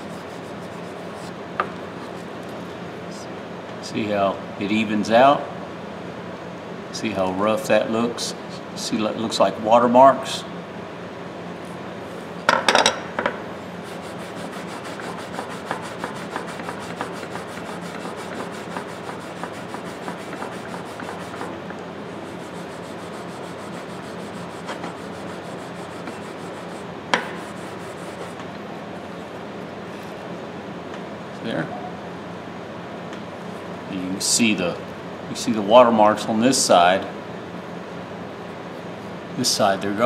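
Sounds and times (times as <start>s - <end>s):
steel wool rubbing on steel: 0.0s - 1.4s, 13.8s - 28.4s.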